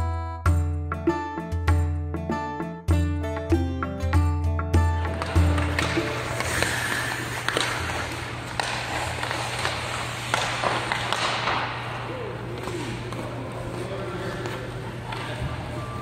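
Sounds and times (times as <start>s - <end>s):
hockey sticks clacking: 5.0s - 16.0s
skates scraping on ice: 5.0s - 16.0s.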